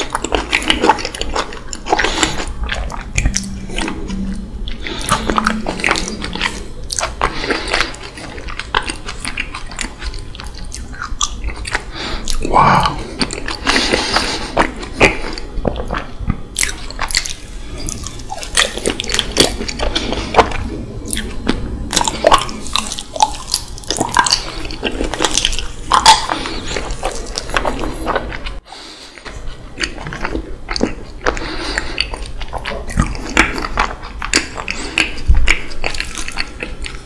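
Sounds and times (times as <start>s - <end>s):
mouth clicks and lip smacks chewing: 29.2s - 37.0s.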